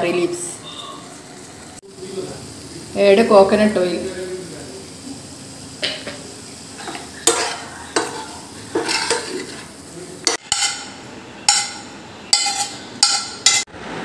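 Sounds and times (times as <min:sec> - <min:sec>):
spoon clinking against pan: 0:06.8 - 0:09.4, 0:10.2 - 0:13.6
metal spoon scraping in steel pan: 0:06.8 - 0:13.7.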